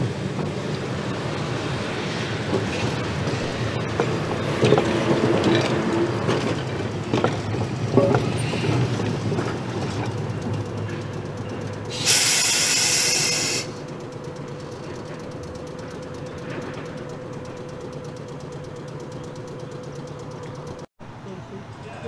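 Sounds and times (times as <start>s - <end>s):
wheel squeal: 0.0s - 20.8s
streetcar wheels rumbling on rails: 0.0s - 22.0s
air hissing burst: 11.9s - 13.8s.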